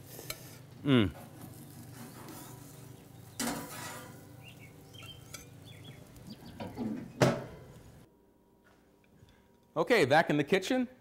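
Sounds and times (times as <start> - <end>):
grilling utensils clinking and scraping: 0.0 - 8.0
light sizzle: 0.0 - 8.1.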